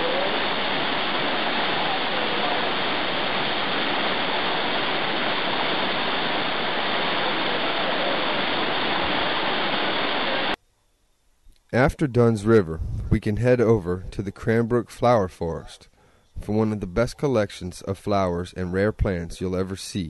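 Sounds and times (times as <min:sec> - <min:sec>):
waterfall rushing over rocks: 0:00.0 - 0:10.6.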